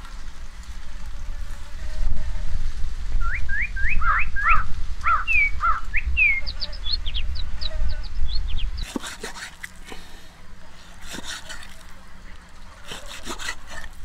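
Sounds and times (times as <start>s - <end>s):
low rumble: 0.0s - 8.9s.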